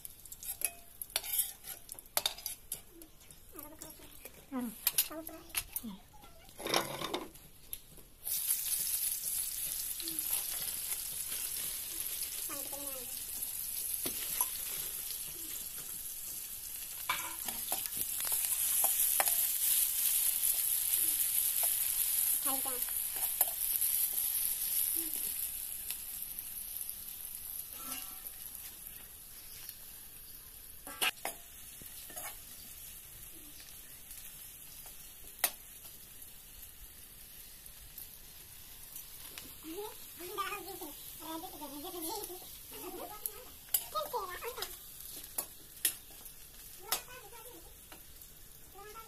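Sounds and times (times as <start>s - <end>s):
eggs sizzling in hot oil: 0.0s - 49.0s
metal ladle scraping a wok: 0.4s - 2.7s, 27.7s - 28.4s.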